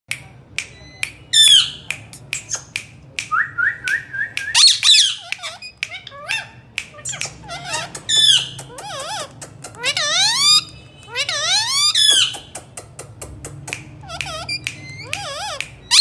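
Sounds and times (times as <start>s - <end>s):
parrot squawks: 4.5s - 12.5s, 13.8s - 16.0s
parrot warbling chatter: 4.6s - 16.0s
parrot clicks: 5.2s - 10.1s, 12.1s - 15.9s.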